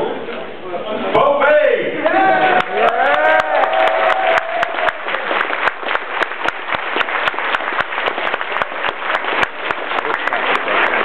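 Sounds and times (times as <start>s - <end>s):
audience applauding: 2.2s - 11.0s.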